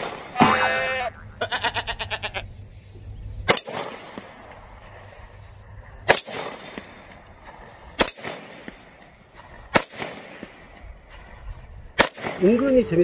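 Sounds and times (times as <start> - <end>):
pistol shots with echo: 6.1 - 7.1, 8.0 - 10.8, 12.0 - 12.7.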